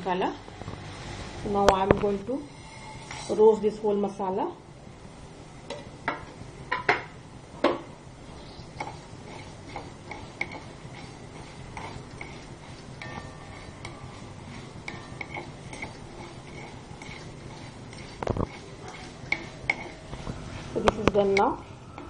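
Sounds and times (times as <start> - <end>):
low steady hum: 0.0 - 22.0
spatula scraping metal pan: 2.2 - 3.7, 8.4 - 22.0.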